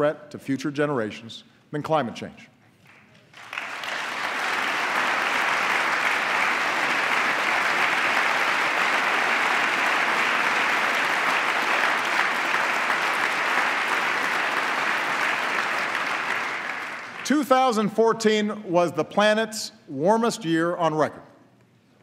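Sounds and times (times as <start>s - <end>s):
large crowd applauding: 2.9s - 17.4s.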